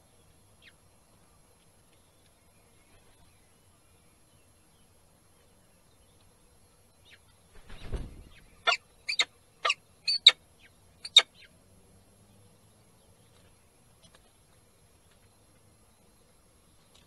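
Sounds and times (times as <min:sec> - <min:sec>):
wing rush: 0:07.5 - 0:08.6.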